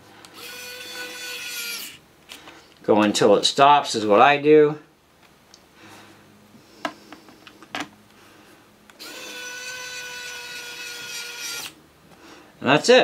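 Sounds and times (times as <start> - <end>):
electric screwdriver whirring: 0.4 - 2.0, 9.0 - 11.8.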